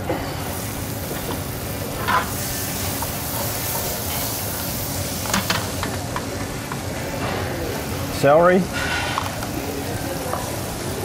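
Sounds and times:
vegetables sizzling in a pan: 0.0 - 11.0.

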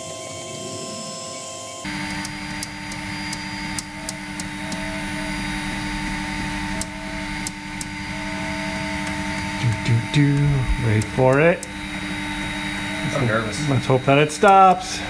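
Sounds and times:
printer motor hum: 0.0 - 15.0
sharp ticks: 14.4 - 14.8.

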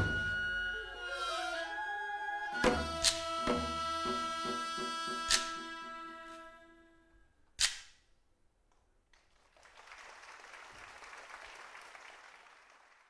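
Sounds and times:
music notes: 0.0 - 7.0
sharp wooden clapper clack: 3.0 - 3.6, 5.3 - 5.6, 7.6 - 8.0
audience applause: 9.3 - 13.0.

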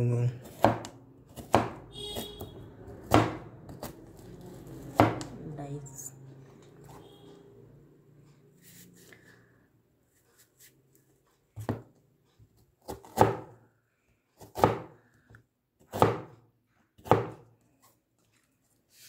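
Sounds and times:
cleaver chopping on a plastic board: 0.4 - 2.4, 3.0 - 4.0, 4.8 - 5.3, 12.8 - 13.5, 14.4 - 15.0, 15.8 - 16.3, 17.0 - 17.4.

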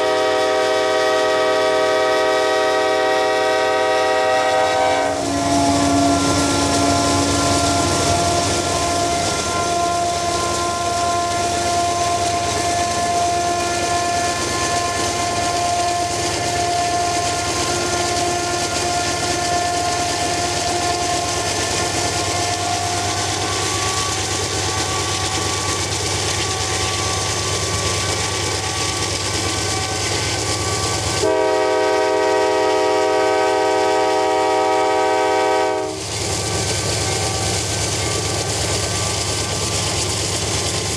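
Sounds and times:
train horn chord: 0.0 - 25.7, 29.6 - 36.0
diesel locomotive engine and rail rumble: 0.0 - 40.9.

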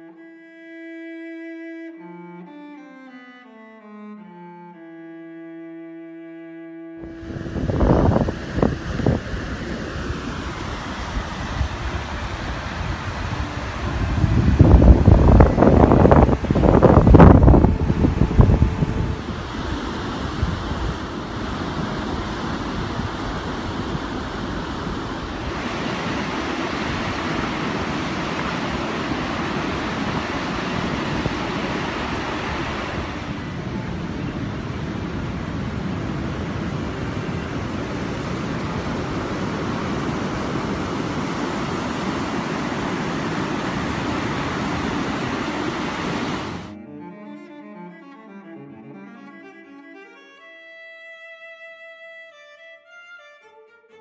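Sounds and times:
wind on microphone: 7.0 - 46.7
ocean surf washing in: 7.0 - 46.8.

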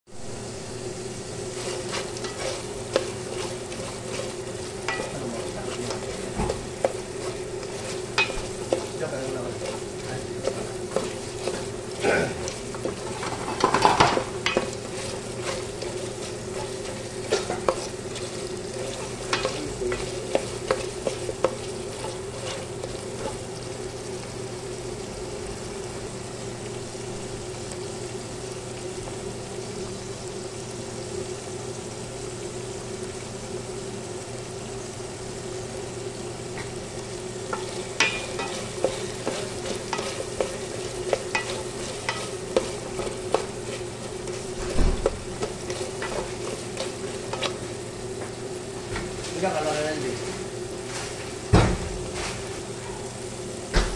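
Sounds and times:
steady hum: 0.1 - 53.8
chicken sizzling in a pot: 0.1 - 53.9
utensil scraping a pot: 1.2 - 23.6, 37.5 - 47.8.

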